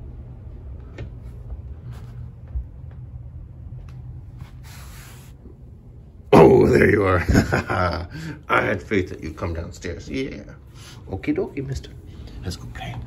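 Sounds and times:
low steady hum: 0.0 - 13.0
soft rustle: 1.2 - 2.6.

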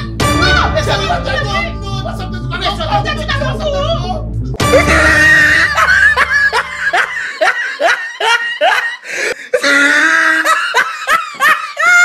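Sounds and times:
music bed: 0.0 - 8.0
person laughing hard: 4.7 - 12.0.

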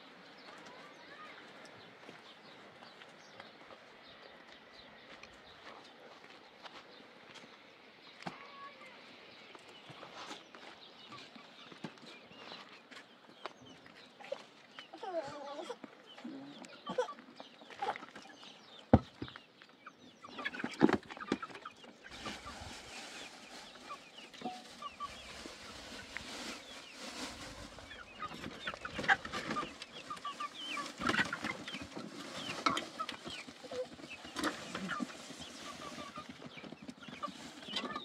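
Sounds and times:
chickens clucking: 9.6 - 38.0.

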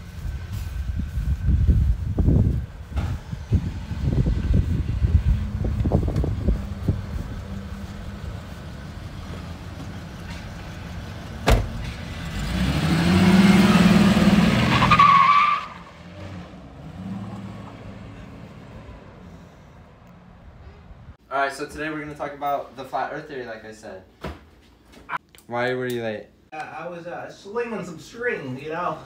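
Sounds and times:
pickup engine revving: 2.9 - 19.5
car door shutting: 11.4 - 12.0.

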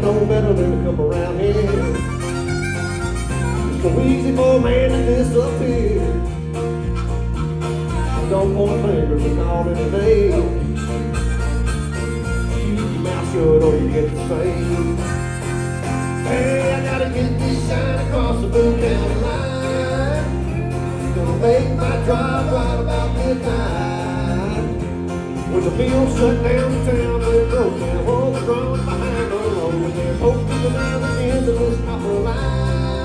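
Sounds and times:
person singing: 0.0 - 2.4, 3.5 - 6.3, 8.2 - 11.3, 12.5 - 24.9, 25.5 - 33.0
acoustic guitar strumming: 0.0 - 33.0
electric bass: 0.0 - 33.0
harmonica: 0.0 - 33.0.

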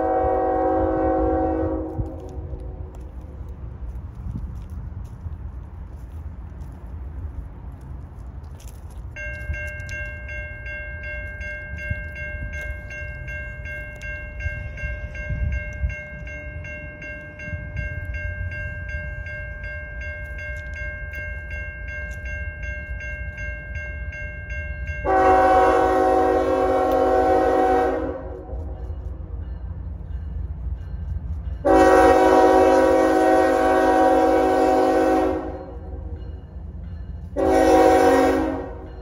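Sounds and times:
locomotive horn blowing: 0.0 - 2.9, 25.0 - 28.7, 31.6 - 36.0, 37.4 - 38.9
crossing warning bell ringing: 5.6 - 39.0.

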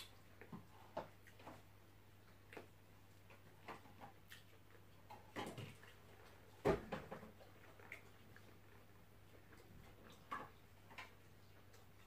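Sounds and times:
lip smacks and wet chewing clicks: 4.1 - 5.2.

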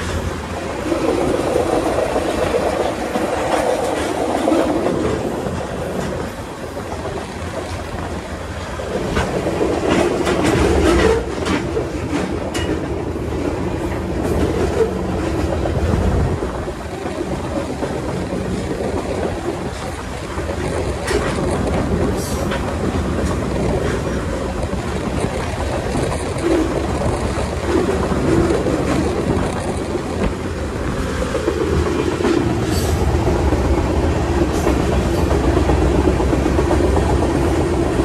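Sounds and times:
clickety-clack of rail joints: 0.0 - 38.0
train wheels rumbling on rail: 0.0 - 38.0.

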